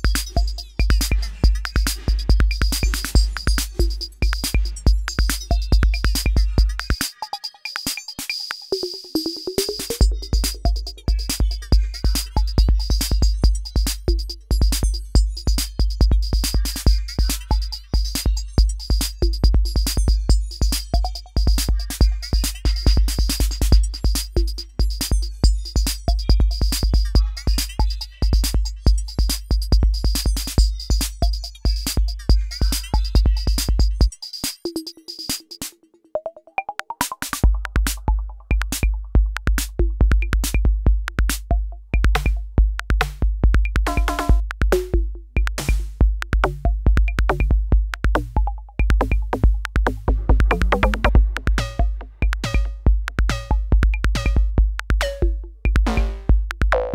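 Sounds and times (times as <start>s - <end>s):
snare drum: 0.0s - 6.4s, 43.9s - 46.7s, 49.0s - 55.2s, 55.8s - 56.9s
kick drum: 0.0s - 6.9s, 10.0s - 34.1s, 37.4s - 56.9s
hi-hats: 0.0s - 35.8s, 37.0s - 56.6s.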